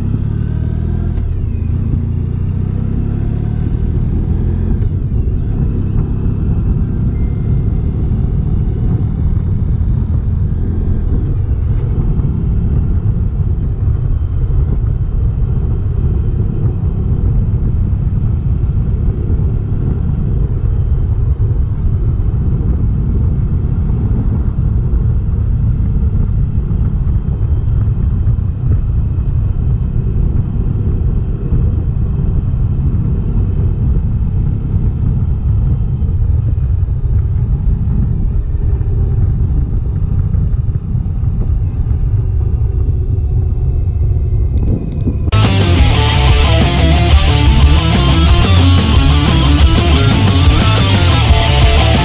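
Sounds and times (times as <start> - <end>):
motorcycle engine and road noise: 0.0 - 52.0
wind buffeting microphone: 0.8 - 45.4
music: 45.3 - 52.0.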